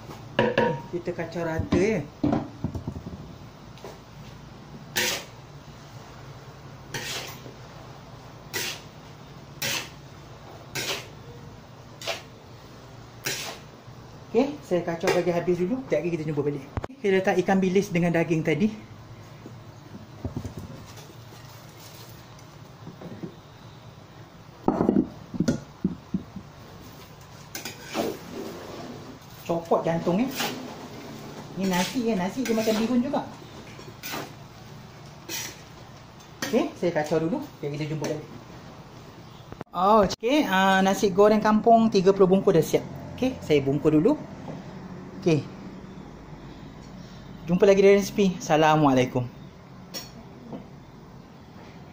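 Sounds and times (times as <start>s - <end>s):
metal spatula scraping a wok: 4.9s - 5.4s, 6.9s - 7.5s, 8.5s - 8.9s, 9.6s - 10.0s, 10.7s - 11.2s, 12.0s - 12.4s, 13.2s - 13.7s, 27.5s - 34.4s, 35.2s - 35.7s.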